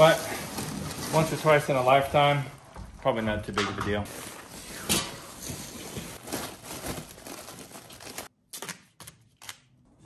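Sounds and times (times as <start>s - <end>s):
foil duct crinkling: 5.9s - 8.3s.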